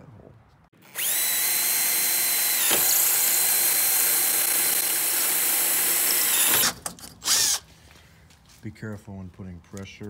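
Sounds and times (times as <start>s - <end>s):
electric drill whining: 0.8s - 7.7s.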